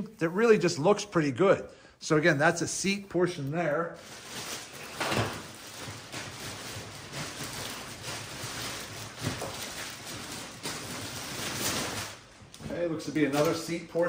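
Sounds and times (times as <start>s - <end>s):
packaging rustling and crinkling: 3.3s - 14.0s.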